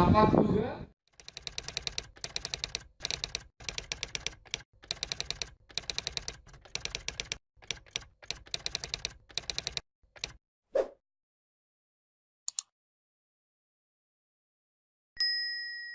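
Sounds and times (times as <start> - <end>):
typewriter keys clacking: 1.1 - 10.4.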